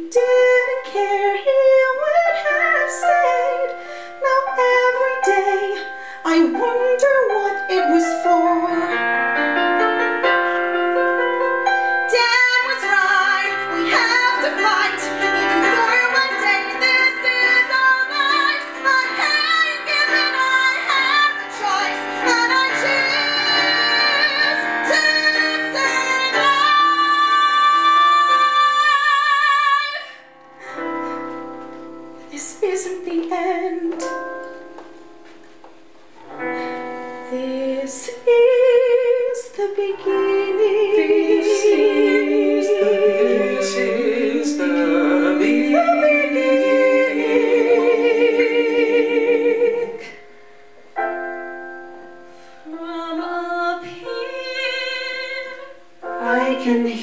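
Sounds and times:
woman singing with vibrato: 0.0 - 9.0, 12.0 - 30.9, 32.3 - 34.2, 37.3 - 50.2, 52.6 - 57.0
piano accompaniment: 0.0 - 57.0
voices singing: 12.2 - 29.6, 39.7 - 50.2.

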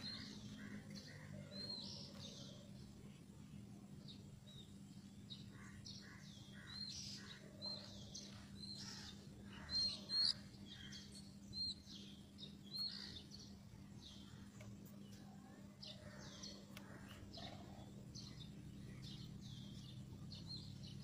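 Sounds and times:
bird calling: 5.6 - 11.8.

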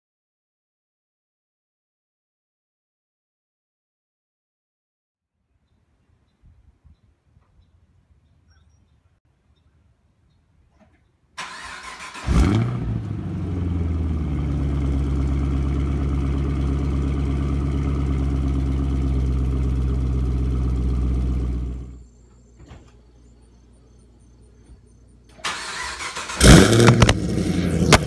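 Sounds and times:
car engine starting and idling: 11.4 - 22.0, 25.3 - 28.0.

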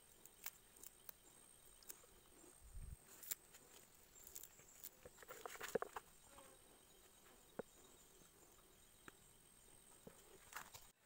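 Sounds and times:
hands tearing herbs: 3.0 - 6.1.

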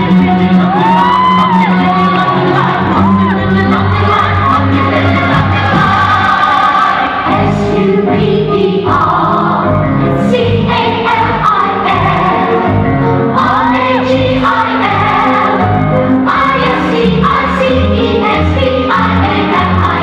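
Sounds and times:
group singing with band: 2.5 - 9.6.

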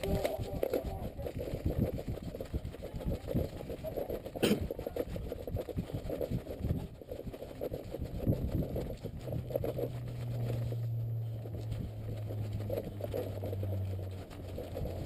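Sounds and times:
steady low hum: 3.8 - 15.0.

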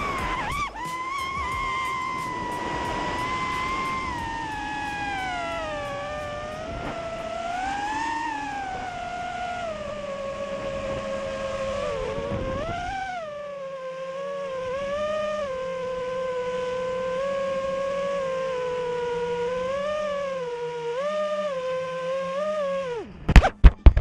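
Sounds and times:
wind noise on microphone: 0.0 - 13.4, 22.8 - 24.0
quadcopter motors whining: 0.0 - 24.0.

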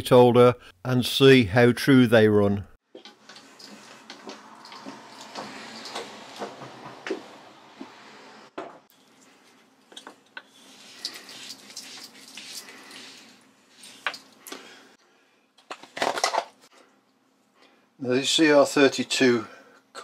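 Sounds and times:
hands rubbing and scraping metal: 3.0 - 8.2, 10.3 - 14.4.

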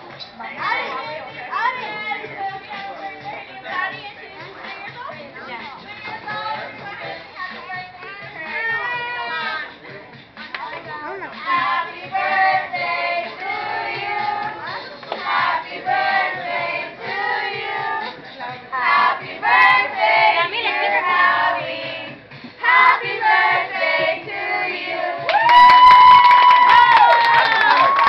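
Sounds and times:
group singing a celebration song: 11.3 - 25.4.

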